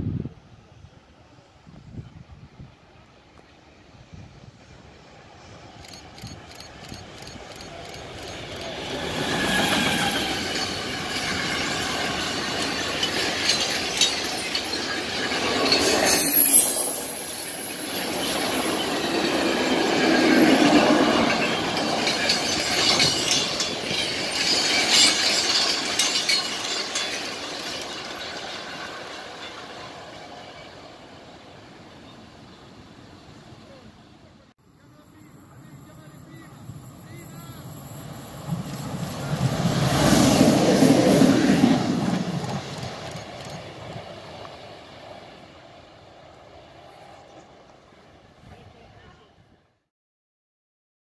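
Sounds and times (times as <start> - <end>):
locomotive whine: 3.3 - 33.8
wagon wheels clattering on rails: 9.4 - 16.5, 20.8 - 30.0.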